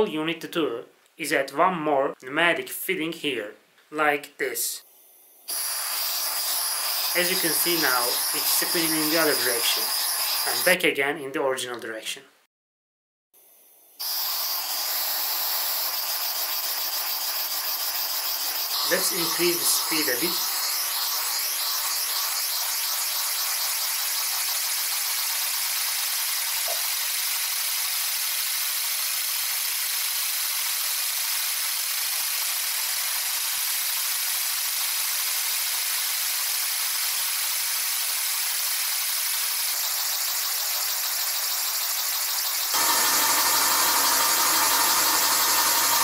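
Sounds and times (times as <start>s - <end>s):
air engine high-pitched whir: 42.2s - 46.0s.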